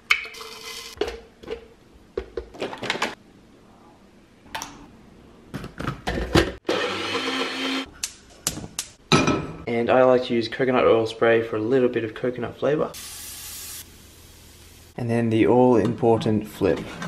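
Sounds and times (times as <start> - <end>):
blender running: 6.6 - 7.9.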